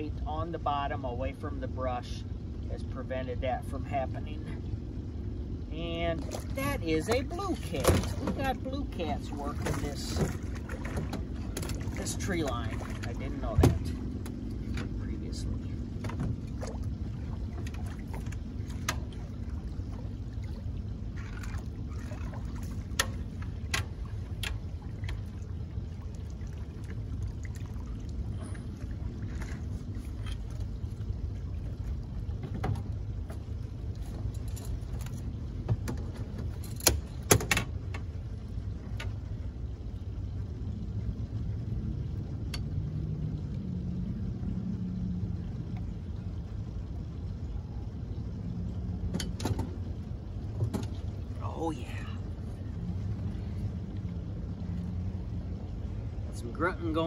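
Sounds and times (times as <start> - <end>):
steady low rumble: 0.0 - 57.0
clicks and knocks of fishing gear: 9.6 - 12.0, 32.4 - 38.1.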